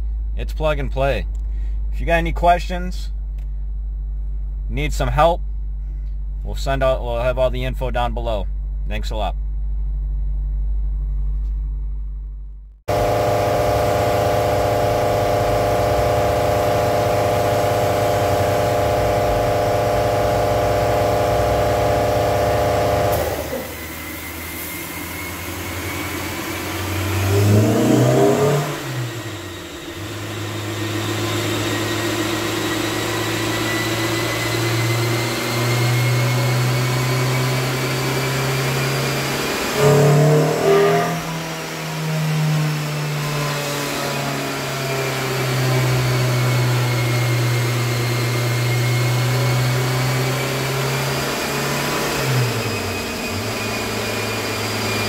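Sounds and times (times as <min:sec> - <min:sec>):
car engine running and revving: 0:12.9 - 0:41.1, 0:42.7 - 0:55.0.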